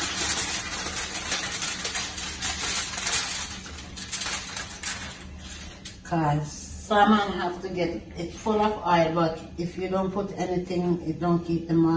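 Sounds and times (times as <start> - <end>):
aluminium foil crinkling: 0.0 - 6.1.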